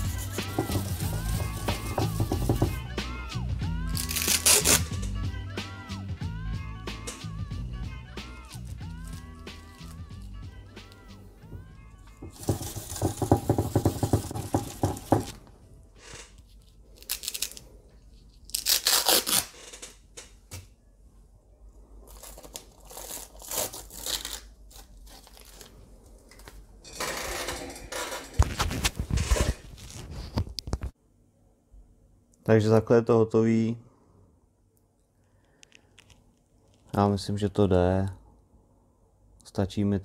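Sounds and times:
masking tape peeling: 0.0s - 2.6s, 3.9s - 5.1s, 16.0s - 20.0s, 22.1s - 30.3s.

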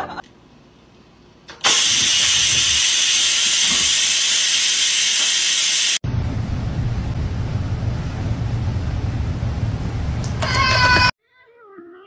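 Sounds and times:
rice cooker steam hissing: 1.6s - 6.0s.

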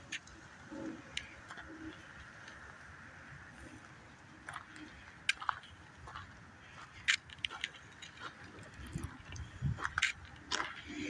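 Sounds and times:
wind rumble on microphone: 0.0s - 11.0s
footsteps on gravel: 4.4s - 11.0s.

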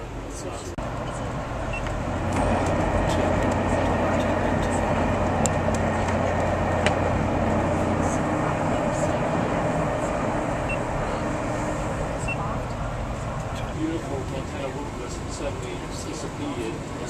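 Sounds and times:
train wheels rumbling on rail: 1.8s - 17.0s.

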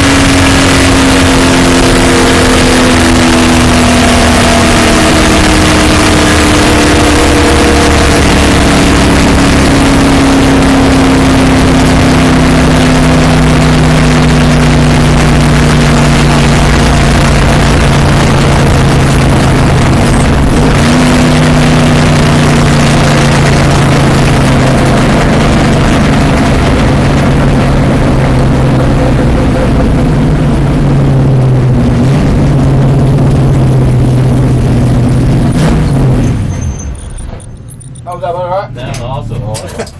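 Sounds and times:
race car engine from cockpit: 0.0s - 39.9s.

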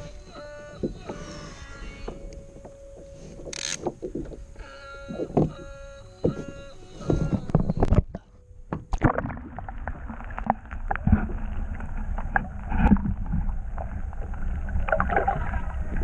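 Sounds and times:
wind on microphone: 0.0s - 8.3s
knocks and clicks from hull: 5.1s - 9.2s.

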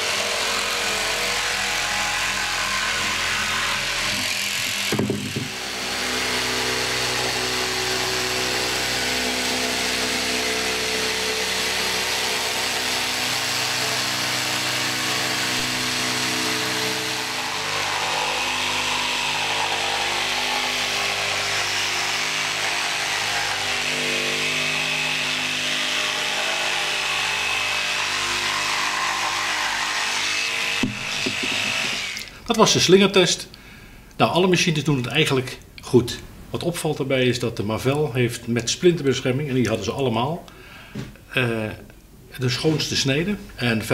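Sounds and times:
electric jigsaw cutting: 0.0s - 32.3s.

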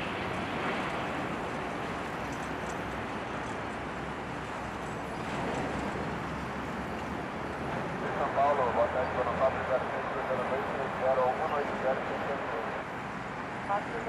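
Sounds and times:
jet engines rumbling: 0.0s - 14.0s.

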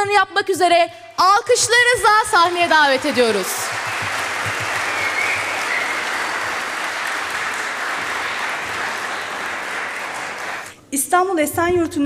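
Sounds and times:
audience clapping: 2.0s - 10.8s.

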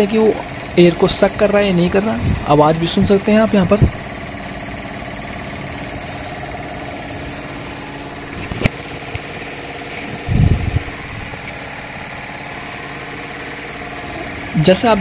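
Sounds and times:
piston air compressor running: 0.0s - 15.0s
short low thump: 3.8s - 4.1s
sharp click: 8.3s - 9.2s.

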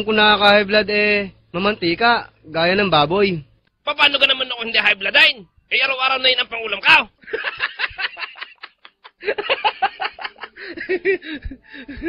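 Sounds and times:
laughter in bursts: 7.2s - 12.0s.

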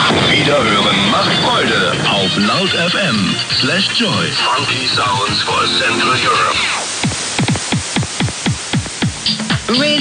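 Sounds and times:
radio static hiss: 0.0s - 10.0s.

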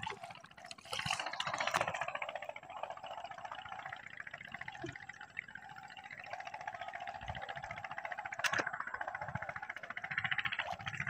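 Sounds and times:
water and mud splash: 0.0s - 2.5s.

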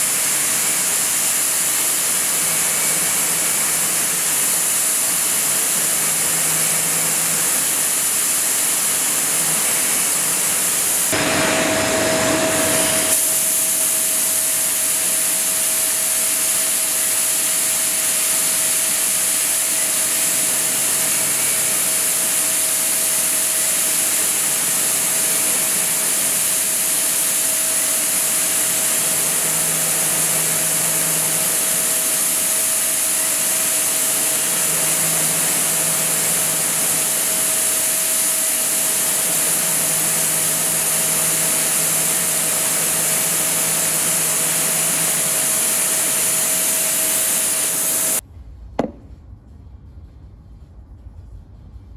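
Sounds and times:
lathe machine hiss: 0.0s - 48.2s
steady machine whine: 0.0s - 51.9s
loud rushing noise: 11.1s - 15.2s.

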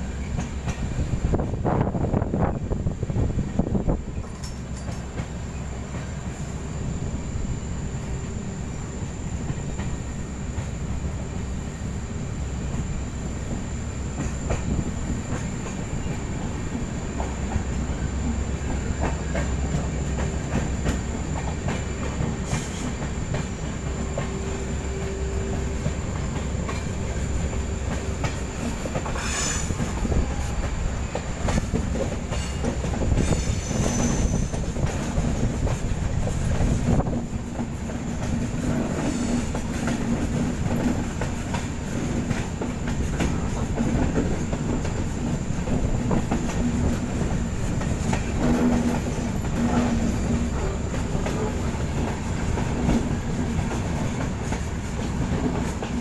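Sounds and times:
rail clicks: 0.0s - 56.0s
train wheels rumbling on track: 0.0s - 56.0s
high-pitched wheel squeal: 33.2s - 34.6s.

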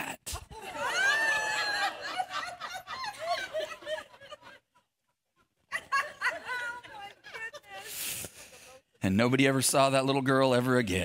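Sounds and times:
congregation laughing: 0.4s - 8.8s.

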